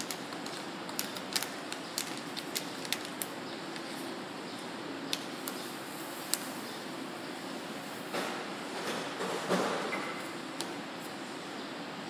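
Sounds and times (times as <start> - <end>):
plastic packet crinkling: 0.0 - 4.0
steady background hiss: 0.0 - 12.0.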